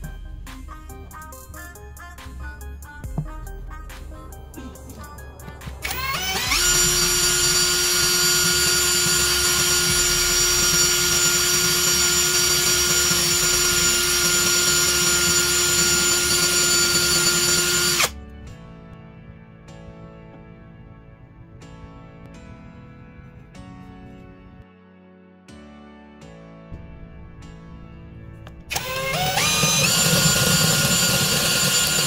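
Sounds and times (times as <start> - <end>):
cordless drill whining: 5.8 - 18.2, 28.7 - 32.0.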